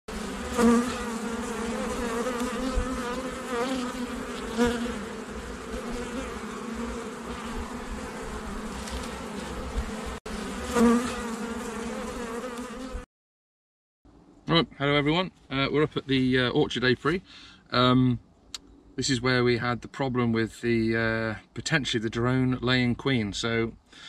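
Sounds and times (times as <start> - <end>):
bee flying past microphone: 0.1 - 13.1
bees buzzing: 0.1 - 13.1.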